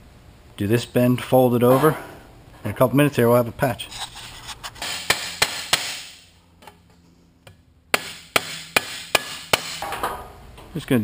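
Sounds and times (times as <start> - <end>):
sheet metal rubbing scrape: 3.8 - 5.1.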